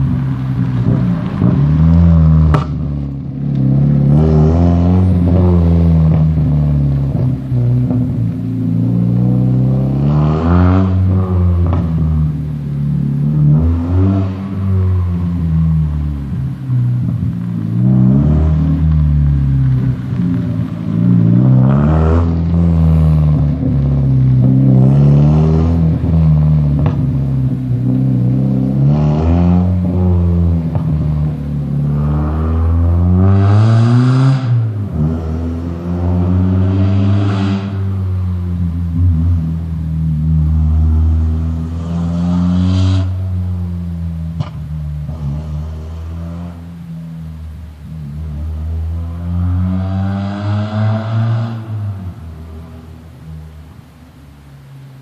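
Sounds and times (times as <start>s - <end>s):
car engine revving: 0.0s - 55.0s
exhaust pops: 0.1s - 4.0s, 26.7s - 27.5s, 30.6s - 31.4s, 44.3s - 45.6s.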